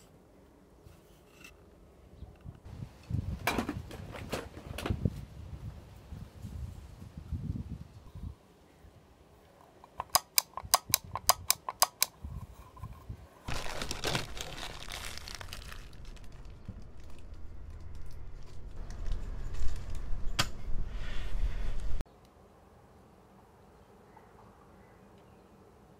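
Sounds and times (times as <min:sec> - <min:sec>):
sharp clicks: 0:09.8 - 0:12.2
small parts crinkling and rustling: 0:09.8 - 0:20.3
low hum: 0:12.8 - 0:22.0.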